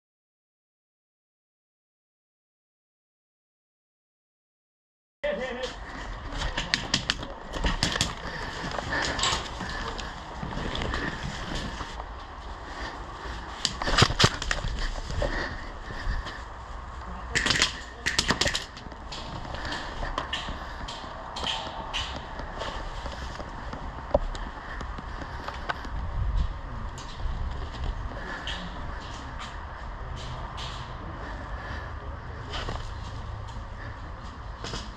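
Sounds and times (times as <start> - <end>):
gear and rifle clattering: 5.8 - 16.4, 17.4 - 25.9
wind rumble on microphone: 18.8 - 34.9.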